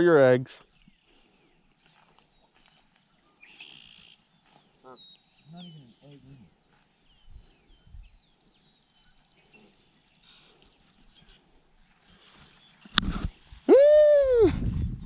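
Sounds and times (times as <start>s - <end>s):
faint bird chirps: 0.7s - 11.4s.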